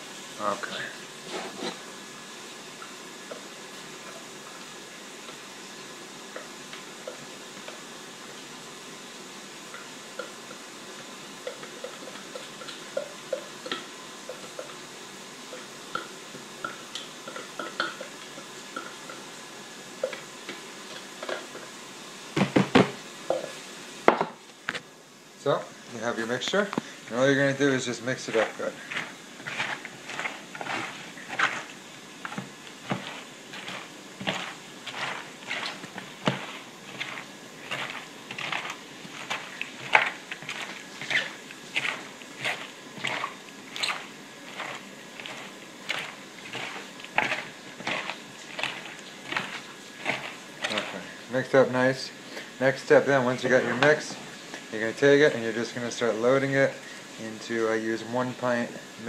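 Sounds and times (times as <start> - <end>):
wet crunching and squishing of cabbage: 28.3 - 51.1.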